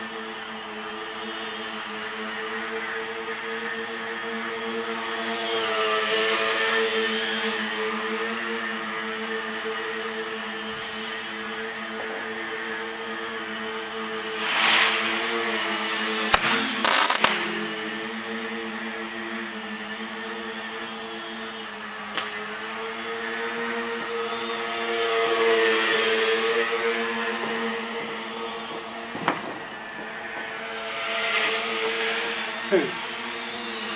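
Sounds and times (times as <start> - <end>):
drone motors buzzing: 0.0 - 33.9
rush of air: 14.3 - 17.6.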